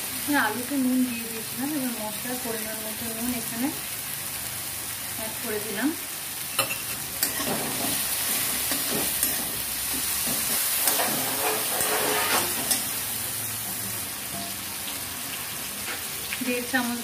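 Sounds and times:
oil sizzling in pan: 0.0 - 17.0
metal spatula scraping pan: 6.6 - 13.0.

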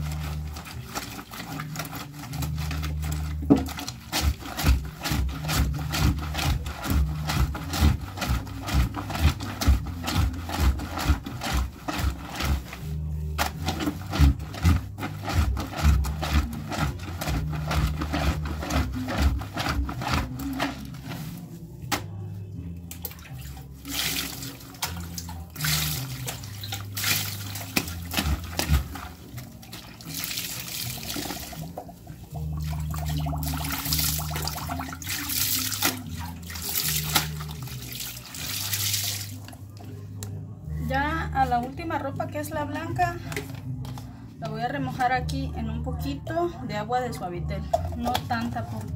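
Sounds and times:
water sloshing and splashing: 0.0 - 21.5, 22.9 - 39.7
scrubbing cloth on washboard: 0.0 - 22.1, 23.0 - 39.5.

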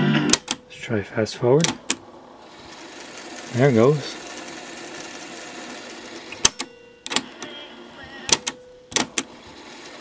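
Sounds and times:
cassette mechanism whirring: 0.2 - 0.8, 1.5 - 10.0
transport buttons clicking: 0.3 - 0.7, 1.6 - 2.0, 6.3 - 9.3.

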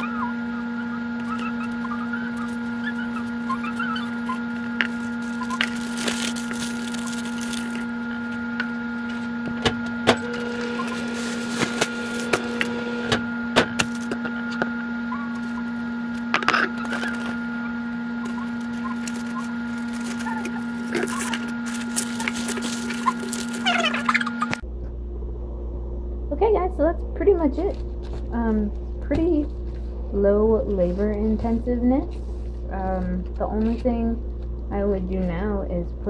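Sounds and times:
electrical hum: 0.0 - 36.0
aluminum foil crinkling: 1.2 - 9.3, 10.5 - 12.4, 16.2 - 17.4, 18.2 - 24.3.

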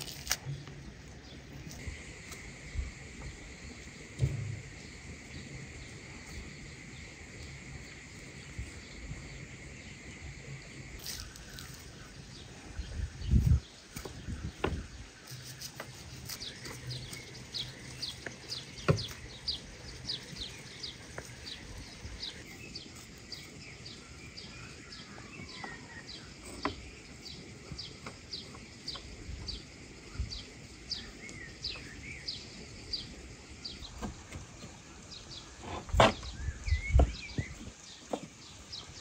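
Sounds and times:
bird chirping: 7.8 - 39.0.

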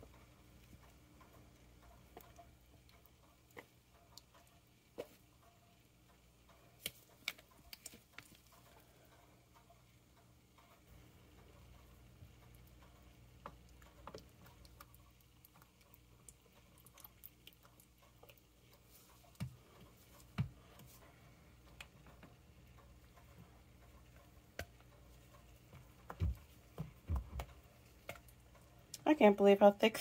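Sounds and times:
low steady hum: 0.0 - 30.0
tools working soap batter: 10.7 - 29.0.

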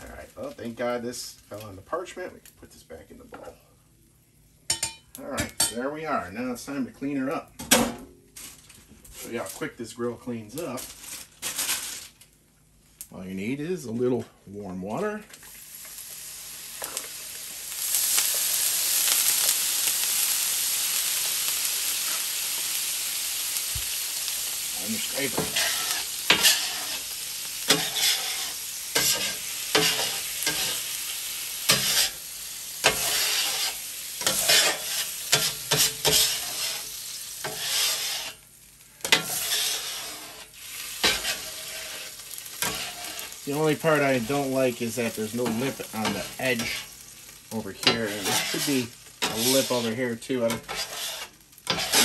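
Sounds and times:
water sizzling on hot griddle: 0.0 - 3.6, 14.9 - 52.0
scrubbing and scraping on steel: 37.4 - 38.4, 39.1 - 43.3, 47.8 - 52.0.

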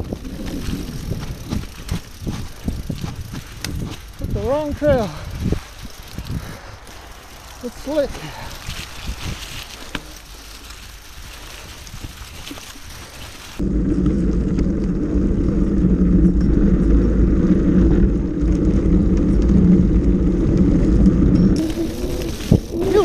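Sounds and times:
bike tyres on dirt trail: 0.0 - 23.0
tyres rumbling over wooden boardwalk: 0.0 - 23.0.

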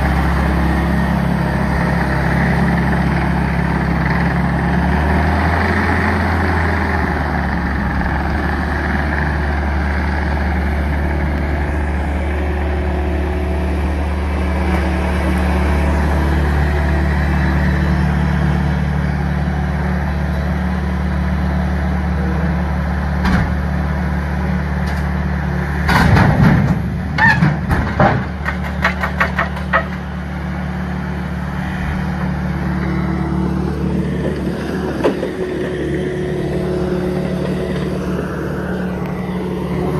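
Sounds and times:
loader engine running: 0.0 - 39.9
logs knocking and clattering: 25.9 - 30.1.

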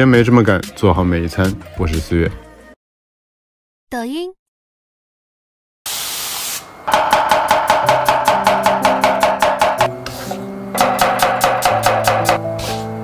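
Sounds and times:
short hiss: 5.9 - 6.7
cleaver chopping on wooden board: 6.9 - 10.2, 10.8 - 12.4.

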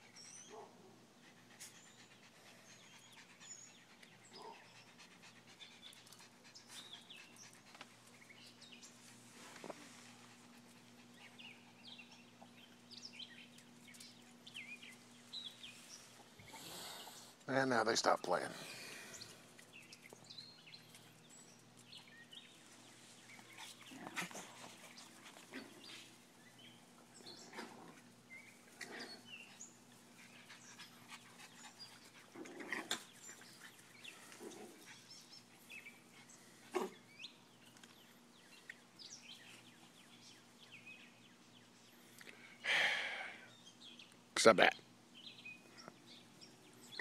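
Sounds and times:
faint dog sounds: 0.0 - 37.3.

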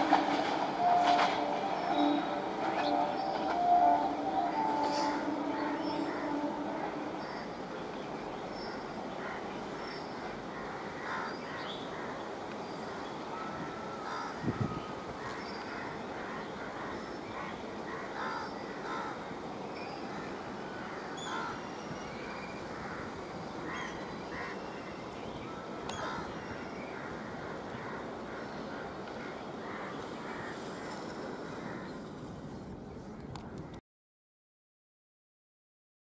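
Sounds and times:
crows cawing: 13.4 - 19.2.

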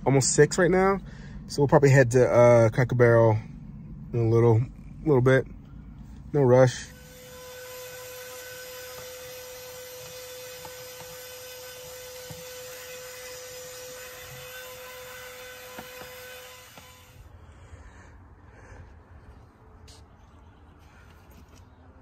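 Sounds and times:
handheld vacuum cleaner whining: 6.9 - 17.2.

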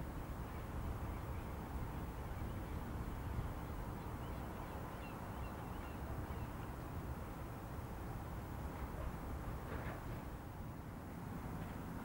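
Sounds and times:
wind buffeting microphone: 0.0 - 12.0
faint bird chirps: 2.2 - 6.8.

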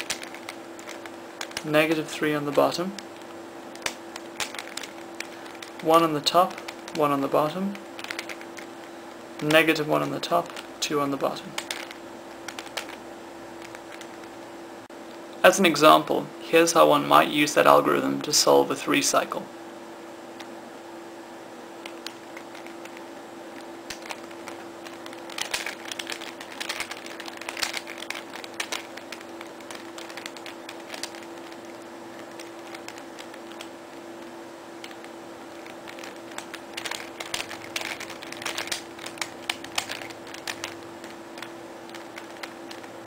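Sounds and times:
plastic puzzle layers clicking: 0.0 - 7.0, 7.7 - 8.7, 11.3 - 13.0, 13.6 - 14.3, 23.6 - 33.7, 34.8 - 43.0
steady hum: 0.0 - 43.0.

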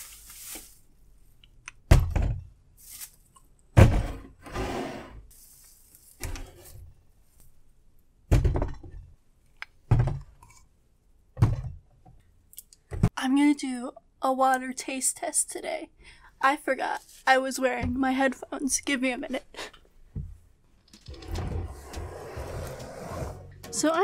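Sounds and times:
plastic rustling: 0.0 - 0.9, 2.8 - 3.3, 5.3 - 6.6.

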